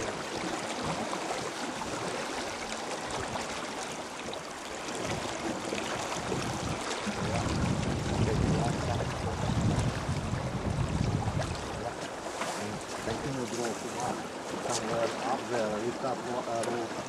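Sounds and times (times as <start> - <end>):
river water flowing: 0.0 - 17.0.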